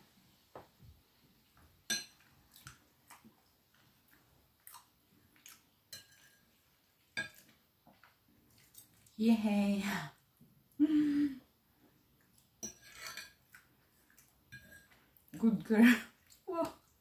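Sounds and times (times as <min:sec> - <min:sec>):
fork and knife clinking on plate: 0:05.9 - 0:06.4, 0:12.6 - 0:13.4, 0:14.5 - 0:15.0.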